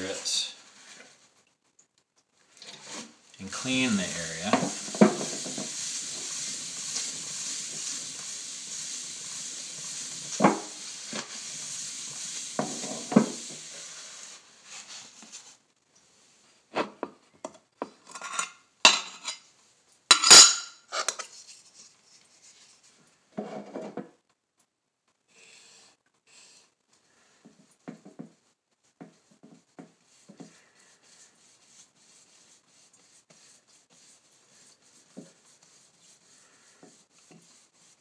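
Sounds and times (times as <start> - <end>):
paper towel scrubbing tile: 2.7 - 15.6, 26.3 - 38.0.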